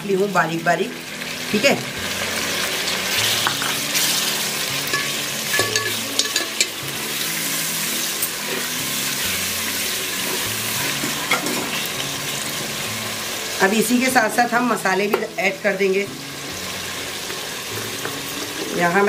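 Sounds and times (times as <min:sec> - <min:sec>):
food sizzling in hot oil: 0:00.0 - 0:19.0
spoon scraping and clinking on pot: 0:04.9 - 0:06.8.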